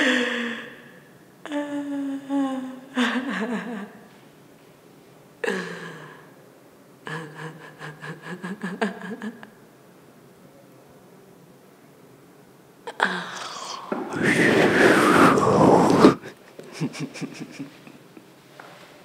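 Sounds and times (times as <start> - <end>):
woman sobbing: 1.5 - 4.0, 5.4 - 6.2, 7.0 - 9.5.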